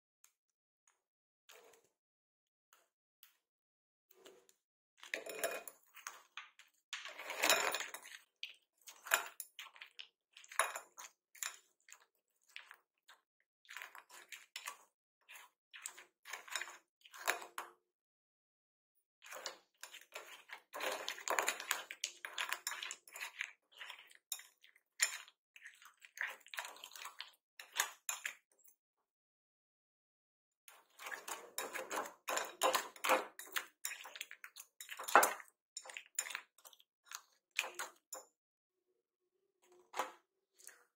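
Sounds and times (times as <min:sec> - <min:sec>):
ice cubes clattering in glass bowl: 0:05.2 - 0:05.8, 0:07.0 - 0:08.1.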